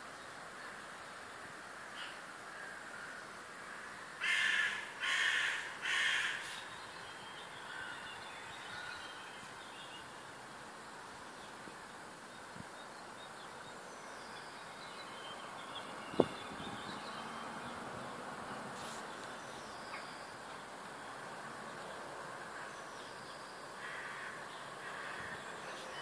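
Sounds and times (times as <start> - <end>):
crow cawing: 2.0 - 6.6, 7.7 - 8.0, 23.8 - 25.4
small birds singing: 3.8 - 26.0.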